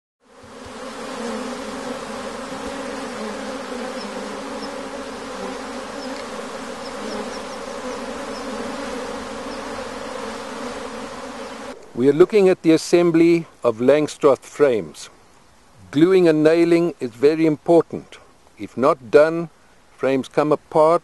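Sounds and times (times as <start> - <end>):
honeybees buzzing: 0.2 - 13.2.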